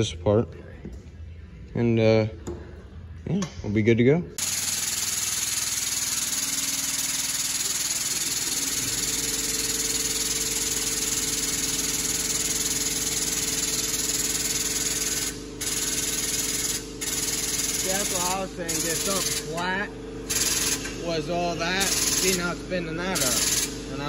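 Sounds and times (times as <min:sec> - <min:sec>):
shop press hissing: 0:04.4 - 0:19.6, 0:20.2 - 0:24.0.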